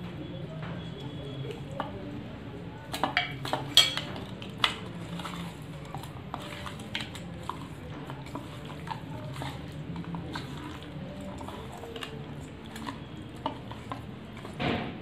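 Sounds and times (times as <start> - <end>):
soft clicks of hand mixing: 0.5 - 14.6.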